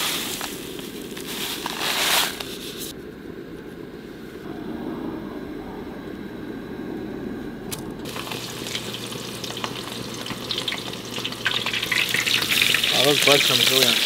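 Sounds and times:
low steady rumble: 0.0 - 12.8
oil sizzling in a frying pan: 8.1 - 14.0.

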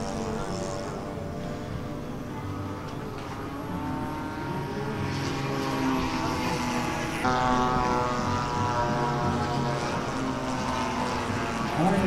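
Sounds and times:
model airplane engine droning: 0.0 - 12.0.

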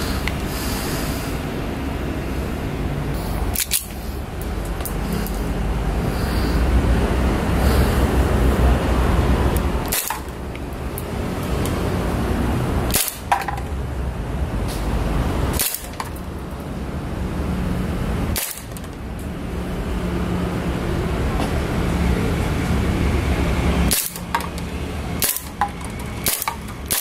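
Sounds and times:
steady low rumble: 0.0 - 27.0
airsoft pistol shots: 9.9 - 10.3, 12.9 - 13.5, 18.4 - 18.8, 25.2 - 27.0.

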